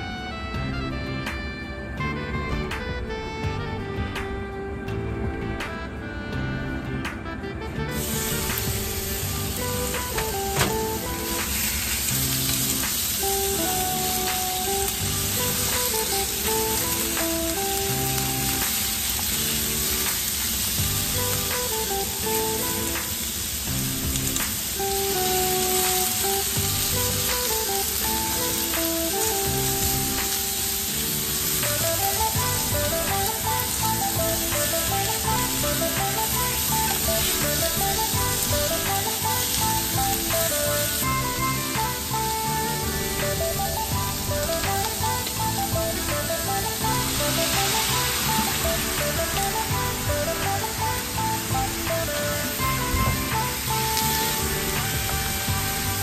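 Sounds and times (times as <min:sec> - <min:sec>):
simple background music: 0:00.0 - 0:56.0
meat sizzling in a frying pan: 0:07.9 - 0:56.0.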